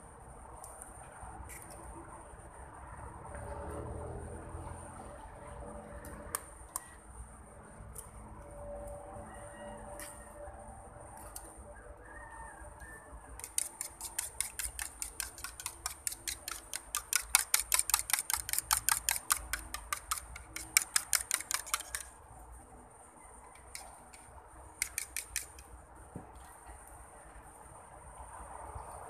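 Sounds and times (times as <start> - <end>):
fork beating eggs in bowl: 13.4 - 22.1, 24.8 - 25.6.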